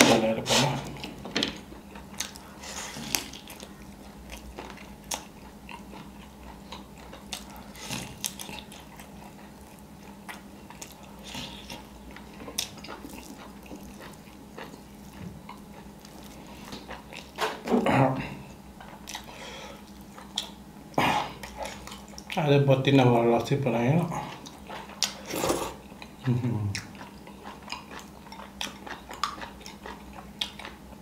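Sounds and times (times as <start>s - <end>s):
person chewing: 0.5s - 17.7s, 18.4s - 22.4s, 24.1s - 31.0s.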